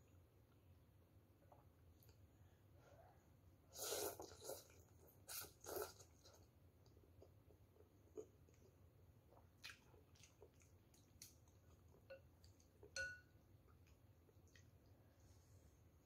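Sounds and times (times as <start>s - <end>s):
soft chewing: 3.8s - 16.0s.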